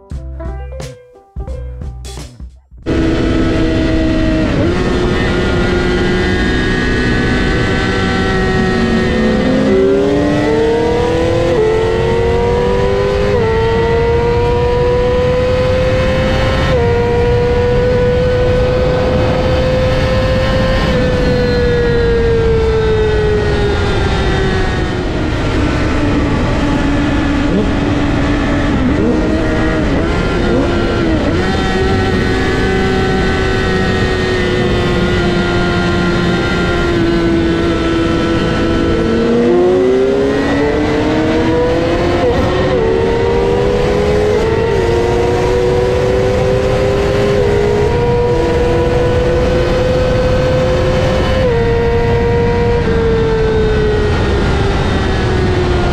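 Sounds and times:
sport bike engine at high revs: 0:02.8 - 0:55.9
wind rush: 0:14.7 - 0:55.9.

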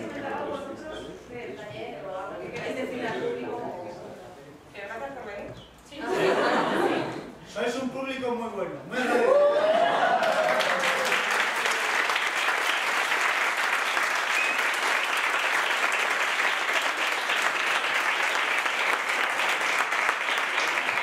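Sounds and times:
people applauding: 0:09.3 - 0:21.0.

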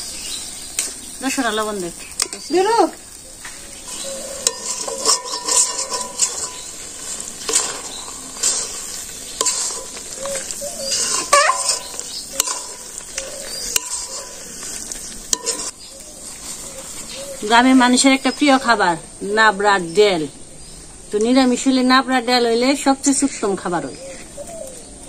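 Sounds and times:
food sizzling: 0:00.0 - 0:25.0
metal spatula scraping a pan: 0:02.1 - 0:18.4
pan ringing: 0:03.8 - 0:14.4.

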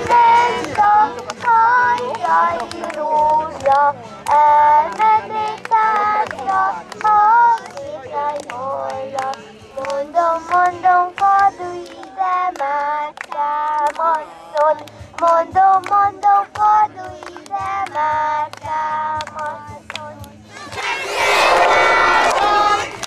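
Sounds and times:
children clapping a beat: 0:00.0 - 0:21.1, 0:22.2 - 0:23.0
girl singing into microphone: 0:09.8 - 0:20.3.

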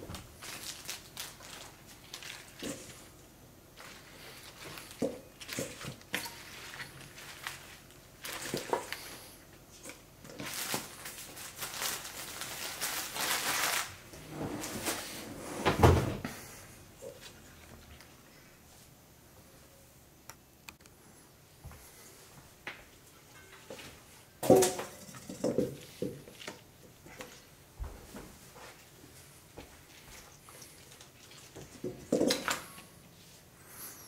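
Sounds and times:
plastic wrapping crinkling: 0:00.1 - 0:09.2, 0:10.3 - 0:15.2.

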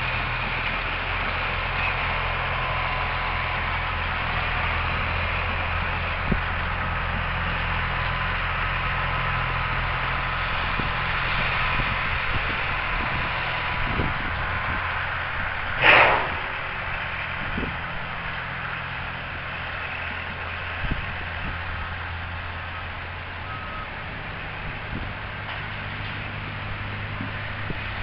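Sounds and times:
diesel engine idling: 0:00.0 - 0:28.0
hiss: 0:15.8 - 0:16.7.

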